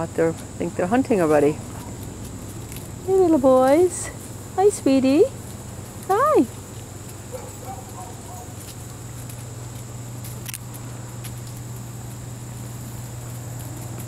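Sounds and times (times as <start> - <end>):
insect drone: 0.0 - 14.0
low hum: 0.0 - 14.0.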